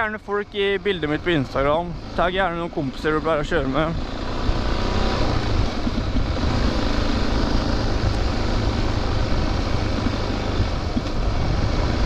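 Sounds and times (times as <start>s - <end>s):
dirt bike engine running: 0.0s - 12.0s
wind noise on microphone: 4.1s - 12.0s.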